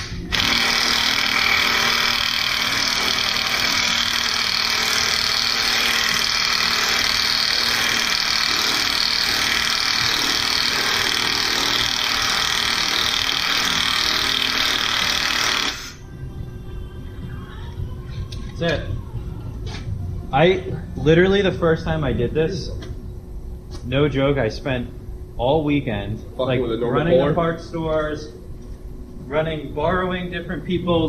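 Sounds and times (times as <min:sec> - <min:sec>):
cordless power tool running: 0:00.0 - 0:16.0.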